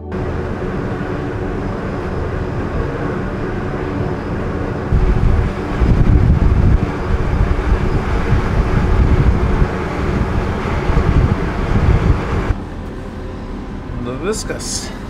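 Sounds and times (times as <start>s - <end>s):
ship engine hum: 0.0s - 15.0s
wind buffeting microphone: 0.1s - 12.6s.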